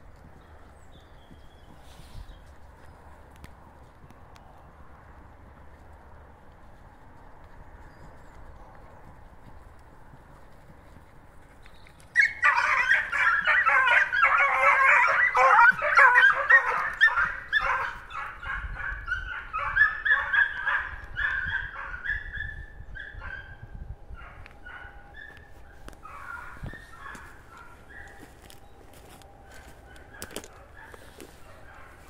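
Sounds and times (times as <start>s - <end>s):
hounds baying and yelping: 12.0s - 23.6s, 24.2s - 32.0s.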